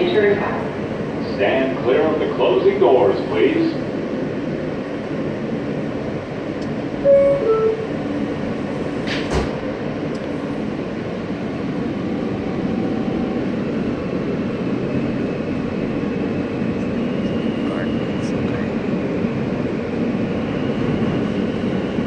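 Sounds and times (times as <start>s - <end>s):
train rumble and hum: 0.0s - 22.0s
two-note descending chime: 7.0s - 7.9s.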